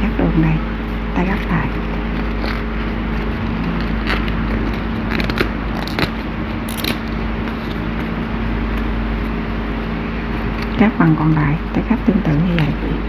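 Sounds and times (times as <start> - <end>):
low background hum: 0.0 - 13.0
paper being folded and creased: 1.3 - 10.8.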